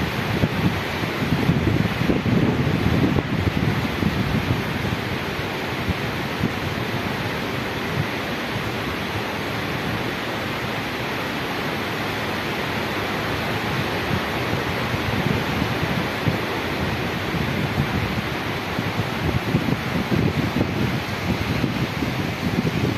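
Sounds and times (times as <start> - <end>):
wind buffeting microphone: 0.0 - 7.2, 13.3 - 22.9
wind rushing: 14.1 - 22.9.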